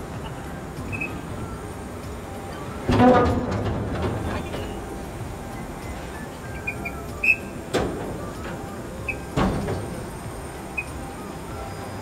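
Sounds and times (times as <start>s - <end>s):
metal squeaks: 0.9s - 1.3s, 2.5s - 12.0s
metal door clanks: 2.8s - 4.9s, 7.7s - 10.2s.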